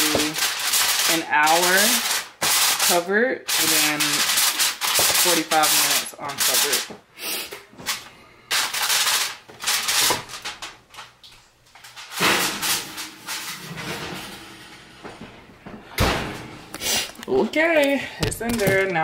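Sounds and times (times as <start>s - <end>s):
rustling and scraping: 7.5s - 17.3s.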